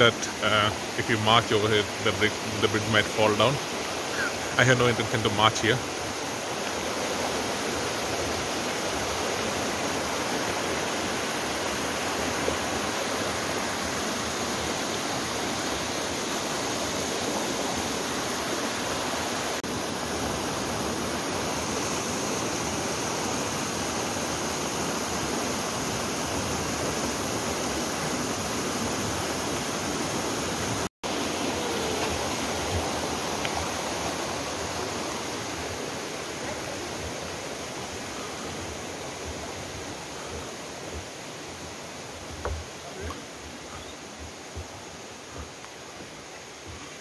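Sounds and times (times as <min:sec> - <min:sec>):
creek water rushing over stones: 0:00.0 - 0:47.0.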